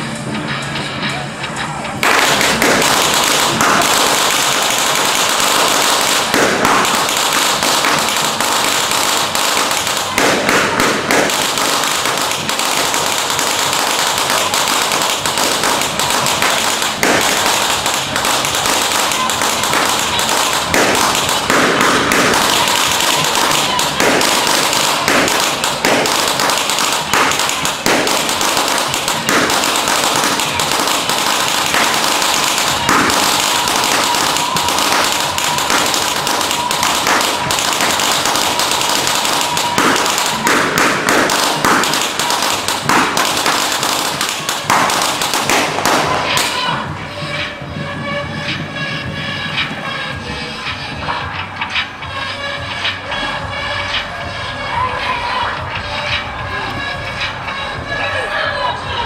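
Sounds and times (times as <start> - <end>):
firecrackers crackling: 0.0 - 59.0
heavy firecracker bangs: 2.0 - 54.5.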